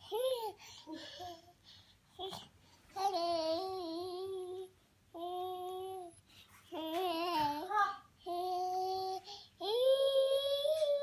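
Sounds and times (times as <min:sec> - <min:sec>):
toddler babbling sing-song: 0:00.0 - 0:11.0.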